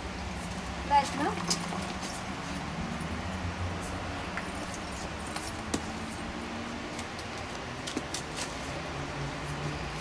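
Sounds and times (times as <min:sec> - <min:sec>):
horse tack jingling and clicking: 0:01.2 - 0:03.1, 0:04.3 - 0:06.2.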